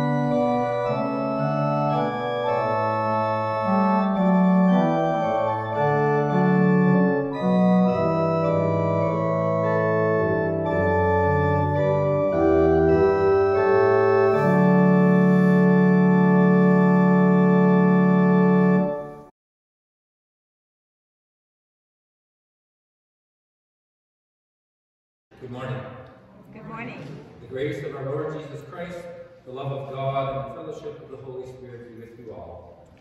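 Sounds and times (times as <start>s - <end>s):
organ playing slow chords: 0.0s - 19.3s.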